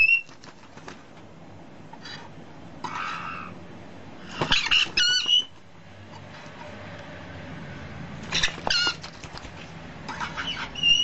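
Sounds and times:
baby parrots chirping: 0.0s - 0.4s, 2.9s - 3.6s, 4.2s - 5.6s, 8.2s - 9.3s, 10.1s - 11.0s.

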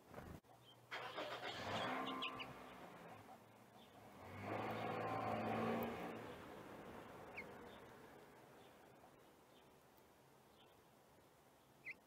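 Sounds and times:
cars passing by: 0.9s - 9.8s
faint bird chirps: 11.6s - 12.0s.

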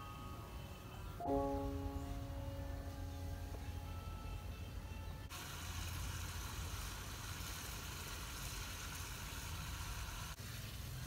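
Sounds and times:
eggs sizzling in a wok: 5.3s - 11.0s.

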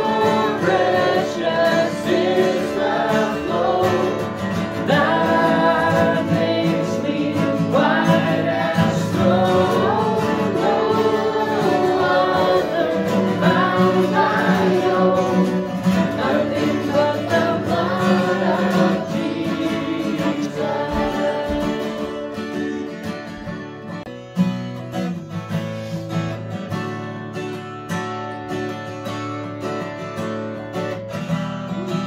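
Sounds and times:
worship band music: 0.0s - 24.0s
acoustic guitar strumming: 0.0s - 32.0s.

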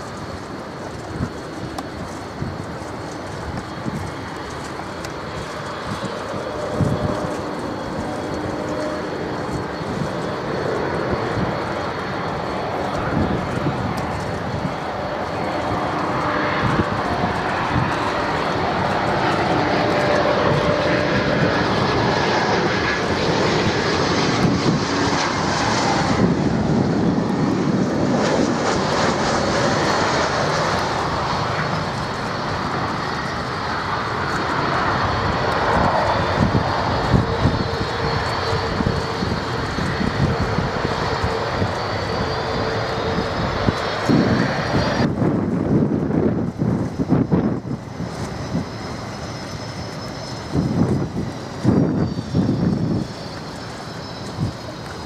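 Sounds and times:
jet airliner engines running: 0.0s - 55.0s
faint rising whistle: 47.0s - 55.0s.

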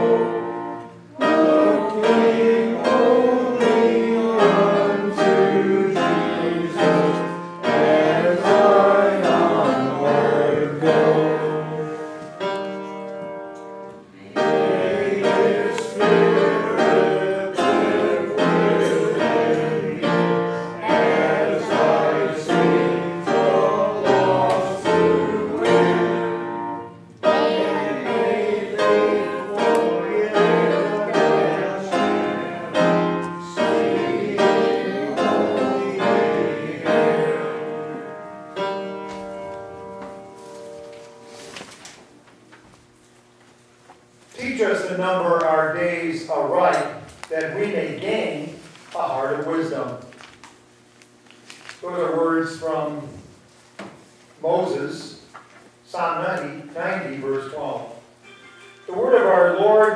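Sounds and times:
piano playing slow chords: 0.0s - 41.6s, 57.6s - 59.9s.

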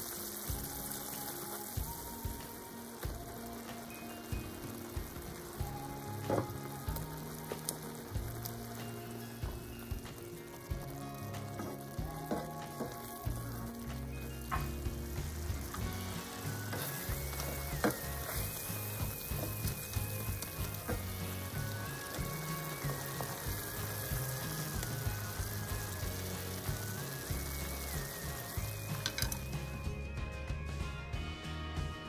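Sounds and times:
sauce sizzling and bubbling: 0.0s - 30.2s
soft background music: 0.0s - 32.0s
spatula stirring: 0.1s - 29.8s.

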